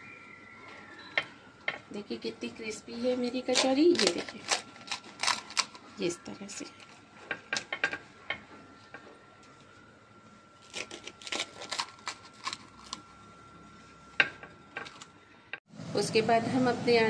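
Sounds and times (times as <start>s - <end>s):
fried pastry crackling: 3.2s - 7.0s, 10.6s - 13.2s.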